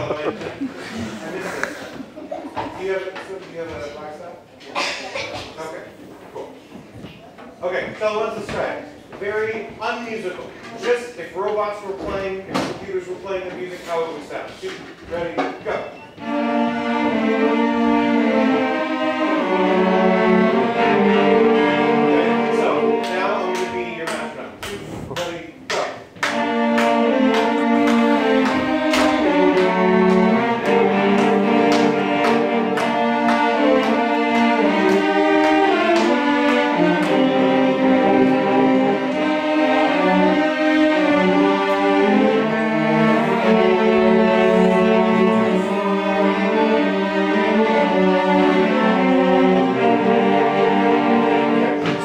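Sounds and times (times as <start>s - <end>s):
string orchestra sustained notes: 16.2s - 24.4s, 26.2s - 52.0s.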